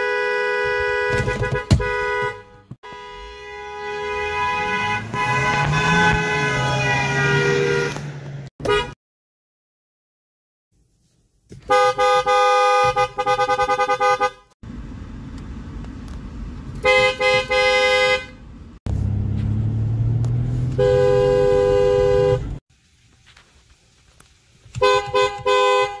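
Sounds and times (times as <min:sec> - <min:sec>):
two-note car horn: 0:00.0 - 0:09.0, 0:20.8 - 0:22.6.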